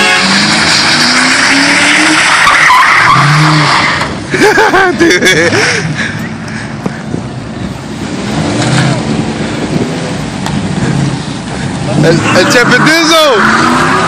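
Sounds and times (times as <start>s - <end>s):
tyre squeal: 0.0s - 4.1s, 12.0s - 14.0s
car engine revving: 0.0s - 4.2s, 8.0s - 14.0s.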